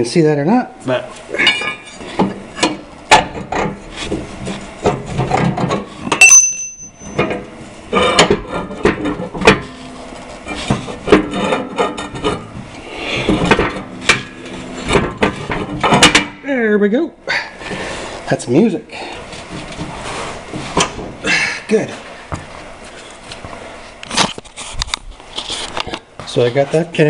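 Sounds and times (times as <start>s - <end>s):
metallic ping: 6.1s - 7.2s
metal pin knocking and scraping: 10.5s - 12.6s.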